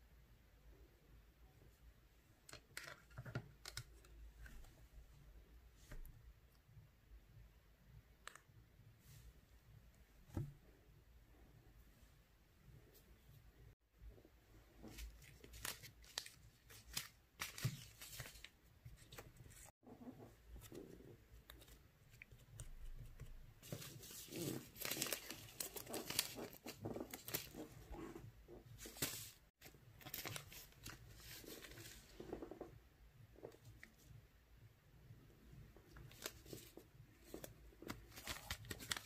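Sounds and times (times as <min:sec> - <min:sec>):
plastic bag crinkling and tearing: 0:24.0 - 0:27.6, 0:36.1 - 0:39.0.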